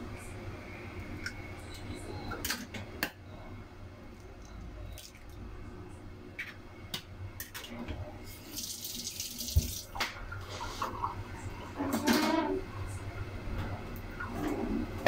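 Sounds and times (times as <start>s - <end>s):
tap running into sink: 9.4s - 10.2s.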